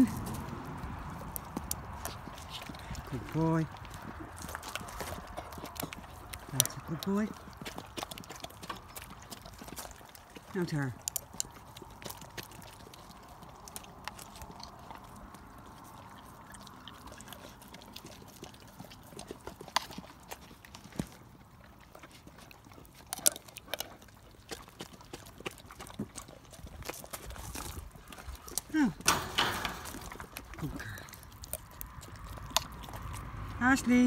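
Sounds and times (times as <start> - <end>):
dog licking a spoon: 0.0 - 29.1, 29.7 - 34.0.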